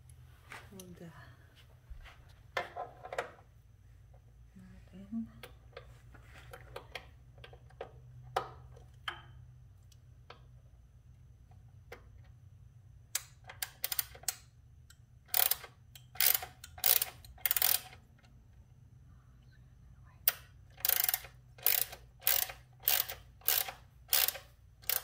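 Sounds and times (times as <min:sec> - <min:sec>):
hand ratchet clicking: 0:13.2 - 0:18.0, 0:20.3 - 0:25.0.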